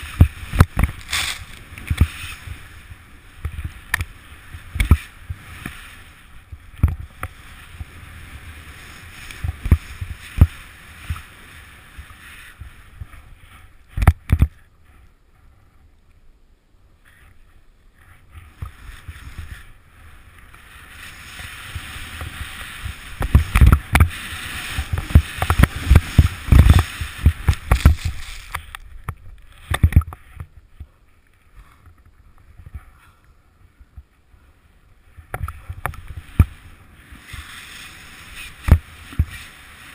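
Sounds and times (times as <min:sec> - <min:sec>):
snow rushing under skis: 0:00.0 - 0:14.0, 0:17.3 - 0:30.0, 0:35.2 - 0:39.9.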